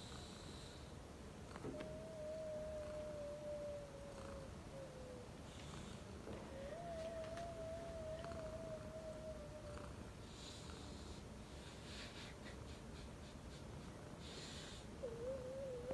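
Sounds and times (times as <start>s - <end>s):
cat purring: 1.5s - 12.1s, 13.8s - 15.9s.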